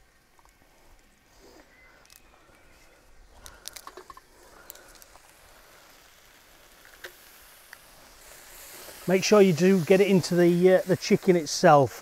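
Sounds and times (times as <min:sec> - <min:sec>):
chicken sizzling in a pan: 0:04.2 - 0:12.0.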